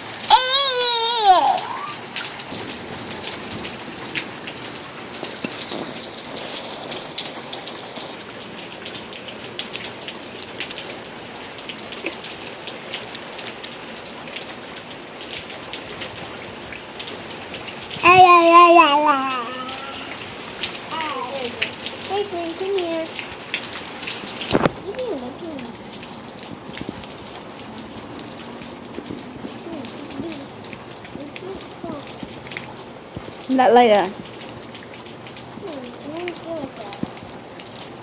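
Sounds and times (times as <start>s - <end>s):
drips ticking: 0.0s - 38.0s
steady rain falling: 0.0s - 38.0s
child calling out: 0.2s - 2.3s, 18.0s - 20.3s, 20.9s - 23.2s, 24.8s - 25.8s, 29.5s - 30.6s, 31.2s - 32.2s, 35.6s - 37.0s.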